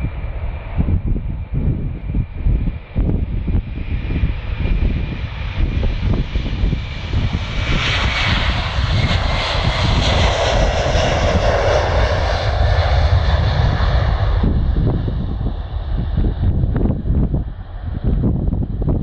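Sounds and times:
jet engines roaring at takeoff: 0:00.0 - 0:19.0.

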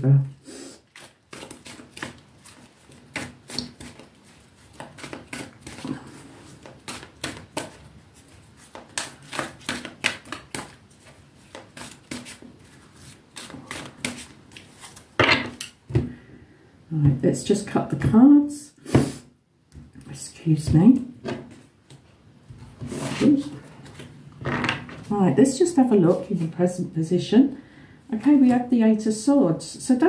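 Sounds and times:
cards being shuffled: 0:00.9 - 0:15.6, 0:22.8 - 0:24.1.

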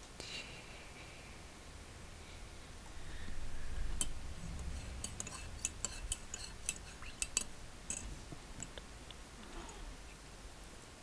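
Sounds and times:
low rumble: 0:01.7 - 0:05.6.

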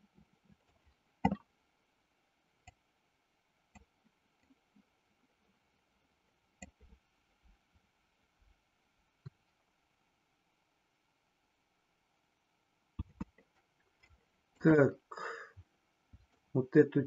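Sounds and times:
computer mouse clicks: 0:13.0 - 0:14.2.

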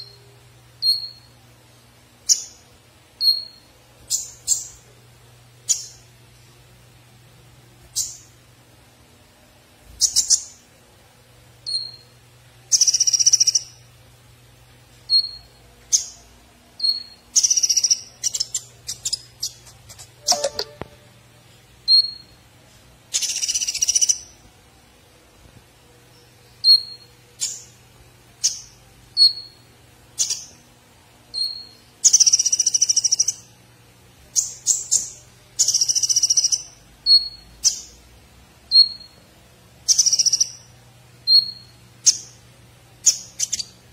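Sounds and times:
faint low hum: 0:00.0 - 0:43.9
bird chirping and twittering: 0:02.2 - 0:02.6, 0:03.2 - 0:04.9, 0:05.6 - 0:06.1, 0:07.8 - 0:08.4, 0:09.9 - 0:10.7, 0:11.6 - 0:12.1, 0:12.7 - 0:13.9, 0:15.0 - 0:21.1, 0:21.9 - 0:22.4, 0:23.1 - 0:24.5, 0:26.1 - 0:27.8, 0:28.4 - 0:30.6, 0:31.3 - 0:33.5, 0:34.3 - 0:38.0, 0:38.7 - 0:39.2, 0:39.8 - 0:40.7, 0:41.3 - 0:42.4, 0:43.0 - 0:43.8.

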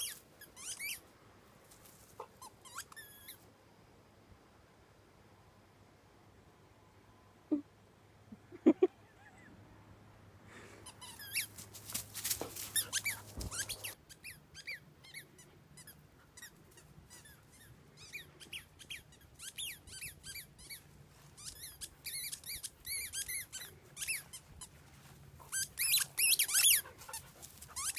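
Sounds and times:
squeaky toy squeaking: 0:00.0 - 0:01.0, 0:02.4 - 0:03.4, 0:10.9 - 0:11.5, 0:12.8 - 0:15.2, 0:15.8 - 0:20.8, 0:21.4 - 0:24.7, 0:25.5 - 0:27.9.

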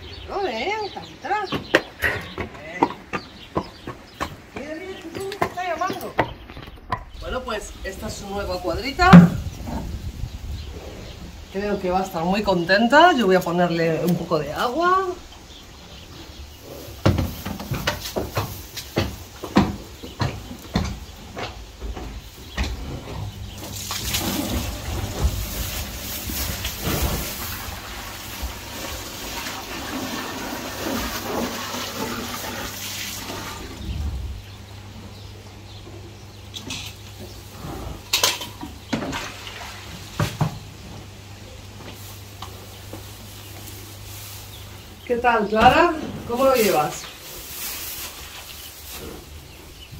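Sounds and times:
mule munching straw: 0:23.4 - 0:33.9, 0:46.4 - 0:49.9.

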